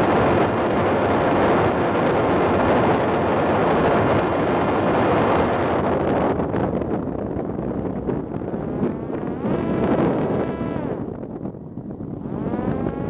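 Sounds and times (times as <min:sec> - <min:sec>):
drone rushing in flight: 0:00.0 - 0:13.0.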